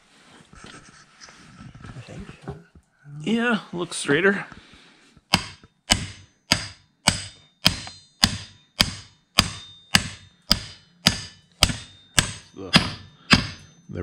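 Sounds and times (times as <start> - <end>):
hammer blows on metal: 5.3 - 14.0.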